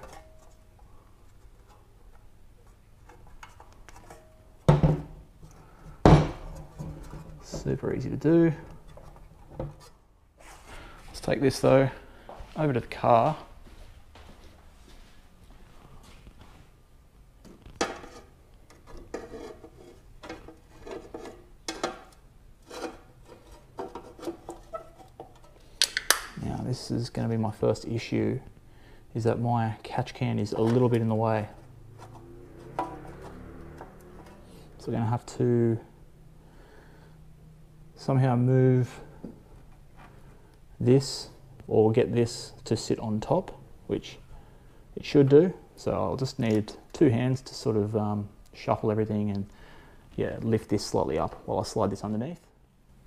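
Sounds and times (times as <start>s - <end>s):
panel knocking and scraping on parts: 1.3s - 5.2s, 8.7s - 9.9s, 17.4s - 25.6s, 31.6s - 34.5s.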